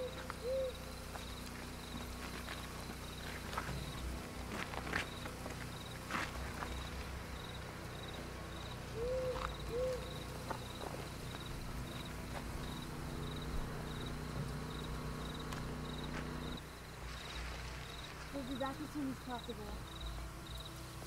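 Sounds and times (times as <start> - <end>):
cricket chirping: 0.0 - 21.0
footsteps on gravel: 1.0 - 7.7, 9.3 - 9.7, 10.3 - 12.9, 15.4 - 19.8.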